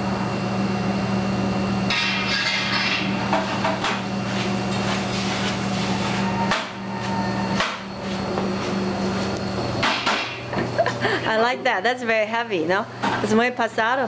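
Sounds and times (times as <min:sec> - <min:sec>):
kitchen exhaust hood humming: 0:00.0 - 0:14.0
metal pan and utensils clattering: 0:01.9 - 0:03.5.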